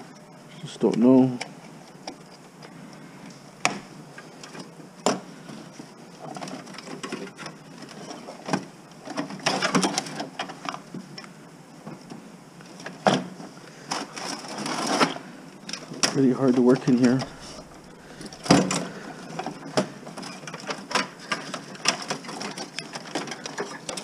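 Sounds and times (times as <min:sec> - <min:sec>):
metal parts rattling and clattering: 0:13.9 - 0:24.0.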